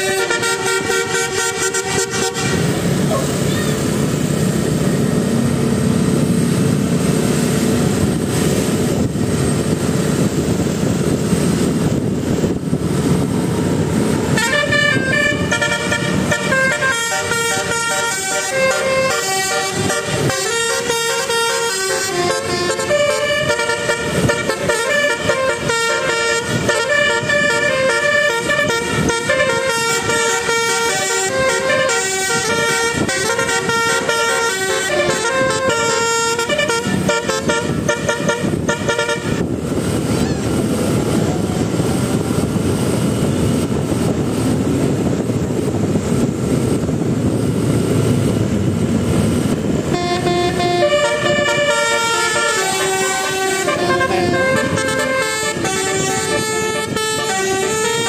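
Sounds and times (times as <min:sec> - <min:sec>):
multi-tone bus horn tune: 0:00.0 - 0:05.1, 0:11.6 - 0:42.6, 0:49.6 - 0:58.0
bus engine: 0:00.0 - 0:58.0
road noise: 0:00.0 - 0:58.0.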